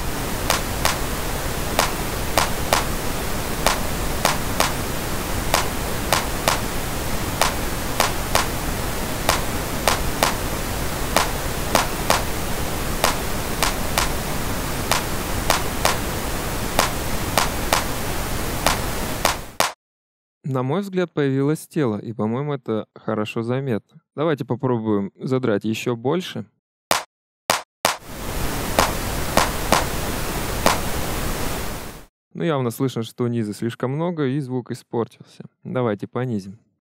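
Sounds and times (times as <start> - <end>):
steady noise hiss: 0.0 - 19.6, 28.1 - 32.1
looping bongo hits: 0.5 - 1.0, 1.8 - 2.9, 5.5 - 6.7, 7.4 - 8.5, 11.2 - 12.3, 14.9 - 16.0, 26.9 - 28.0.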